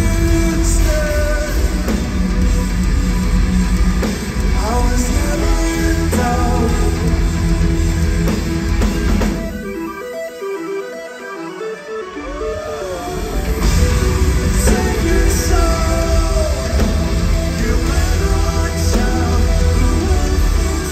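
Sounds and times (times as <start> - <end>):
live metal band playing: 0.0 - 20.9
person singing: 4.6 - 7.4, 14.4 - 20.9.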